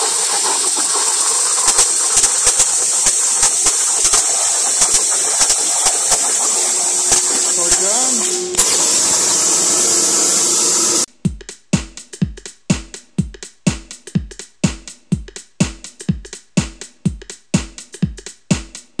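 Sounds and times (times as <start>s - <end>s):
plasma torch hissing: 0.8s - 11.1s
electronic music with drum beat: 1.7s - 9.4s, 11.0s - 19.0s.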